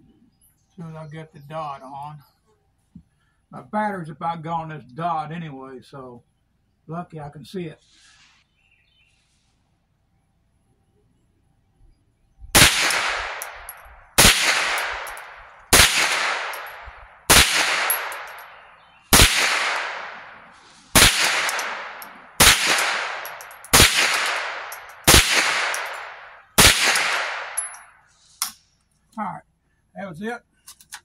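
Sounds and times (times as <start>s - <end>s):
rifle shots with echo: 12.6s - 27.9s.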